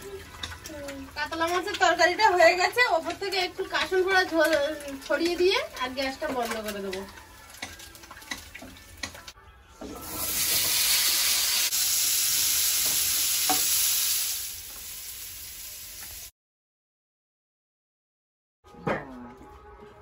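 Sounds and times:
vegetable slices sizzling in oil: 10.0 - 16.3.

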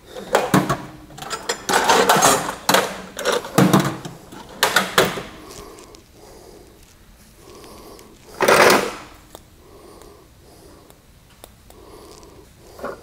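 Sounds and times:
metal tools rattling in drawer: 0.1 - 5.3.

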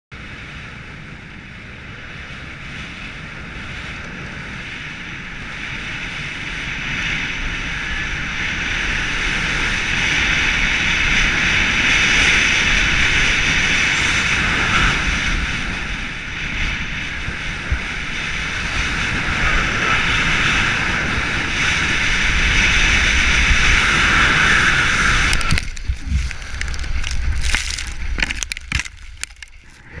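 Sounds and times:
wind rushing over microphone: 0.1 - 30.0
skis hissing on snow: 23.7 - 28.2.

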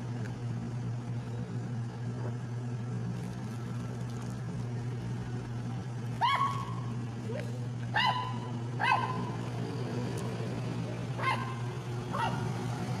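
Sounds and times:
low hum: 0.0 - 13.0
dog yipping: 6.2 - 6.8, 7.9 - 9.3, 11.2 - 12.5.

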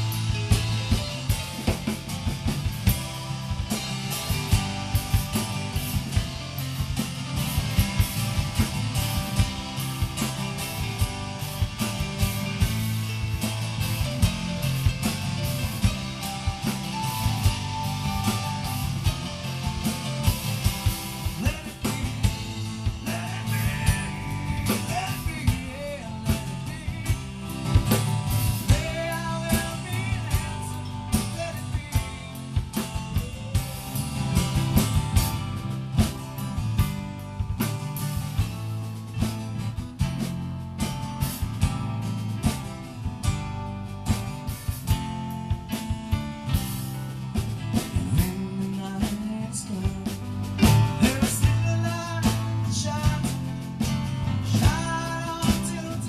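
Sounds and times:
drum kit: 0.0 - 56.0
guitar: 0.0 - 56.0
keyboard: 0.0 - 56.0
person singing: 21.3 - 27.7, 28.6 - 34.0, 48.0 - 53.7, 54.4 - 56.0.

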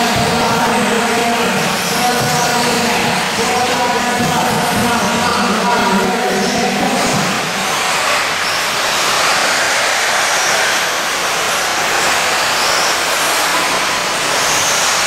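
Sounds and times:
high motor whines: 0.0 - 15.0
rc cars racing rushing noise: 0.0 - 15.0.

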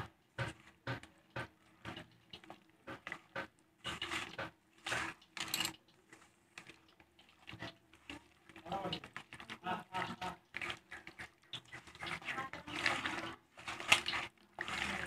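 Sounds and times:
hand squishing wet chicken: 0.5 - 15.0.

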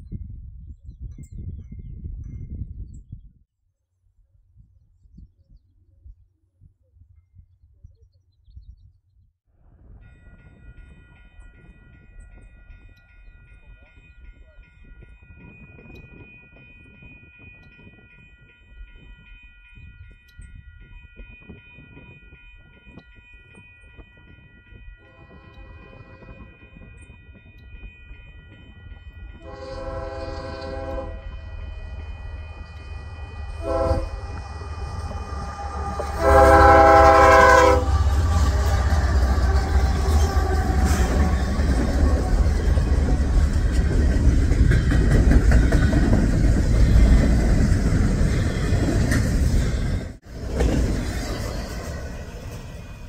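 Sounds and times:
train air horn blasts: 25.0 - 26.5, 29.4 - 41.4
diesel locomotive rumble: 29.1 - 53.0.

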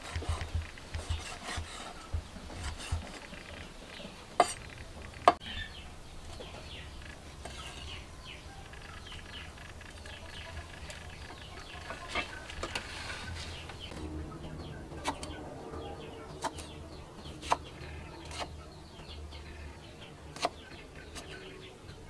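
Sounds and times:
birds chirping: 0.0 - 22.0
cleaver chopping meat on wood: 20.4 - 21.3.

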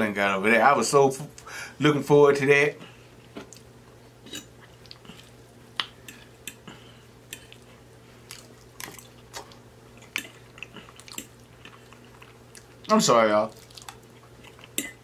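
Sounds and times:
faint steady hum: 0.0 - 15.0
mouth chewing: 7.3 - 15.0.

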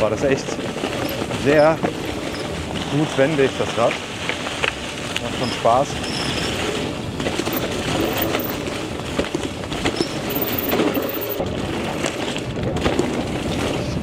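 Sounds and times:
tyres crunching through dry leaves: 0.0 - 12.5
bike knocks and rattles: 6.0 - 14.0.

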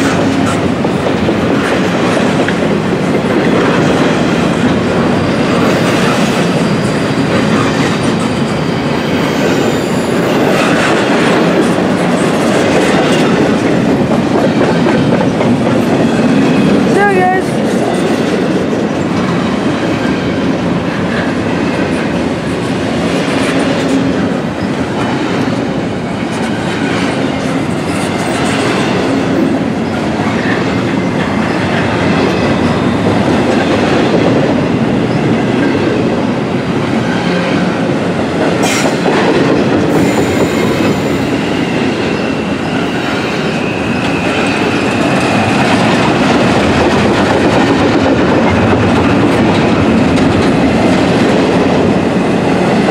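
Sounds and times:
train wheels rumbling over rails: 0.0 - 52.9.

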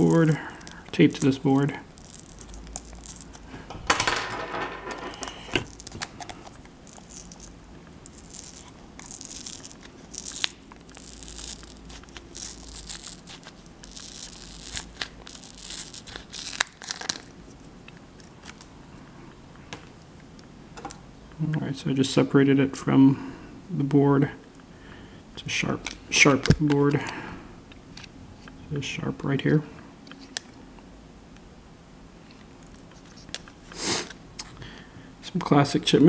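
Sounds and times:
adhesive scraping and tearing: 0.0 - 3.5, 5.1 - 17.6.

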